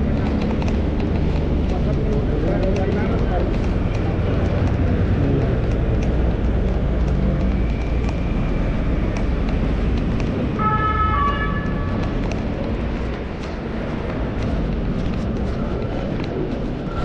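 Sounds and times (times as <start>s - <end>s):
city traffic rumble: 0.0s - 17.0s
horn-like tone: 10.6s - 11.9s.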